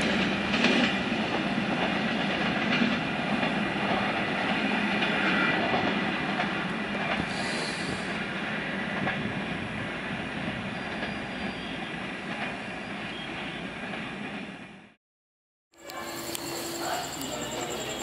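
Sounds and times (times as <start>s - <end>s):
high squeal of train wheels: 5.0s - 5.8s, 7.2s - 8.2s, 10.5s - 13.9s, 15.8s - 18.0s.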